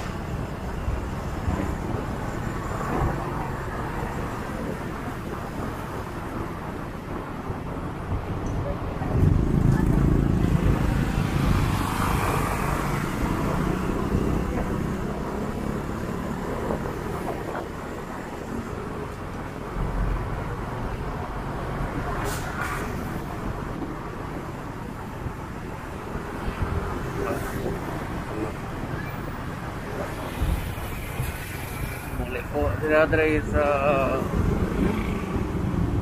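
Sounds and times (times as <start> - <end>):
traffic engines: 0.0 - 36.0.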